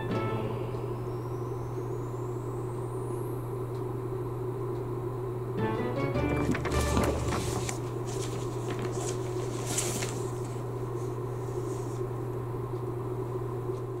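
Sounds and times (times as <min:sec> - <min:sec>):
low electrical hum: 0:00.0 - 0:14.0
faint rustles and clicks: 0:06.4 - 0:12.1.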